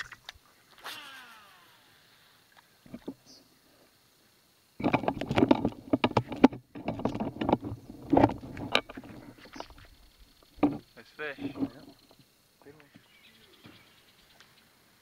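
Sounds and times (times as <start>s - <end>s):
camera handling rubbing and knocks: 4.8s - 9.9s.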